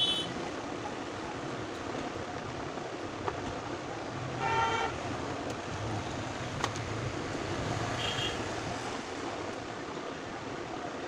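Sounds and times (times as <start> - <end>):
vehicle horn toot: 0.0 - 0.3, 4.4 - 5.0
background traffic noise: 0.0 - 11.0.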